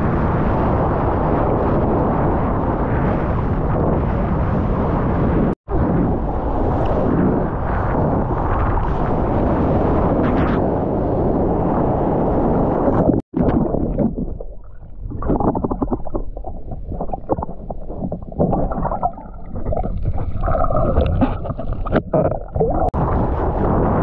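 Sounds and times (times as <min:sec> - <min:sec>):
wind on microphone: 0:00.0 - 0:24.0
muffled underwater gurgling: 0:12.9 - 0:24.0.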